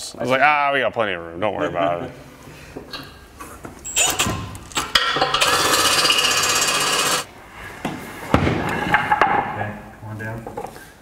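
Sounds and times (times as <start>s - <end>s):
hammer drill rattling: 5.4s - 7.3s.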